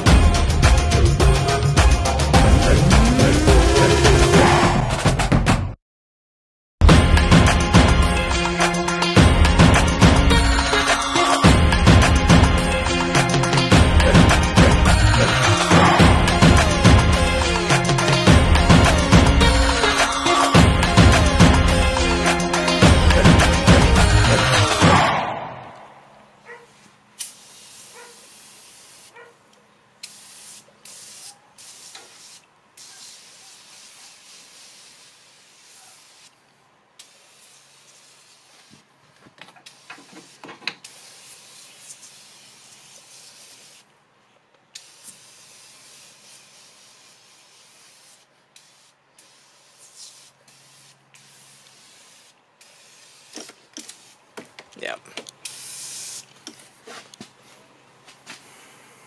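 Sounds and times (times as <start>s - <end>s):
spray can hissing: 9.8s - 24.8s, 27.2s - 29.2s, 30.0s - 36.4s, 37.0s - 38.9s, 39.5s - 43.9s, 44.7s - 54.6s, 55.4s - 57.2s.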